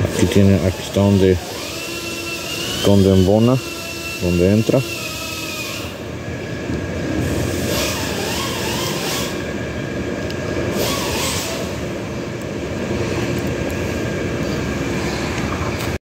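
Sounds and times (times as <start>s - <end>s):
mechanical rumble and hum: 0.0s - 16.0s.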